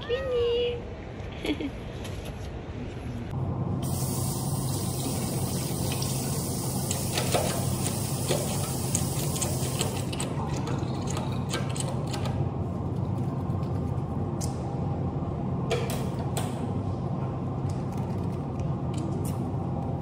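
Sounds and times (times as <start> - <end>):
water running from a tap: 3.8 - 10.2.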